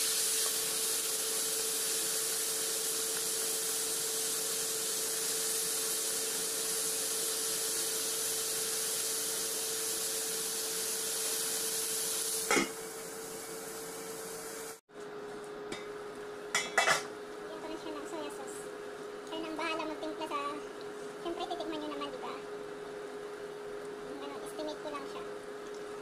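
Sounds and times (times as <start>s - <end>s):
food sizzling in a wok: 0.0s - 14.8s.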